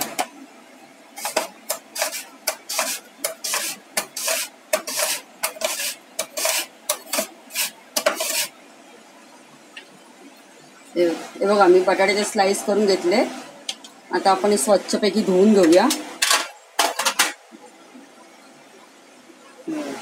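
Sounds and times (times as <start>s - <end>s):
potato rasping on mandoline slicer: 1.2s - 8.6s.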